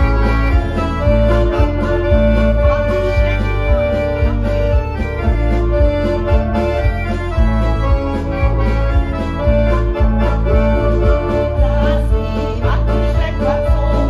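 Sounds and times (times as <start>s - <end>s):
accordion playing folk tune: 0.0s - 14.0s
bass beat: 0.0s - 14.0s.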